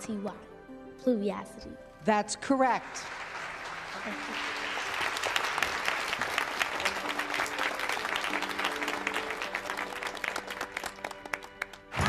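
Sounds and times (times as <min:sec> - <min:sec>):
audience applauding: 0:02.8 - 0:12.0.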